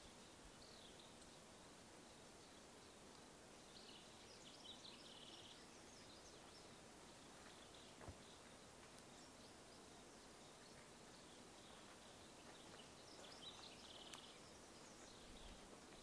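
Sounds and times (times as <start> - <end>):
faint click: 14.0 - 14.4.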